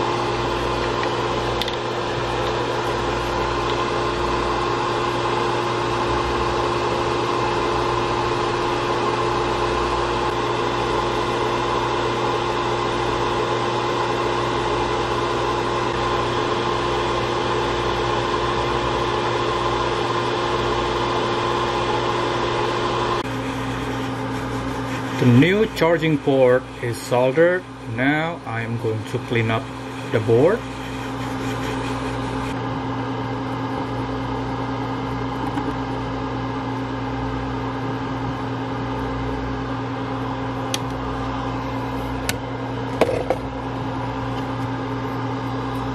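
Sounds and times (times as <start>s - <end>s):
constant hum: 0.0s - 11.5s, 23.2s - 45.9s
small electric fan whirring: 0.0s - 45.9s.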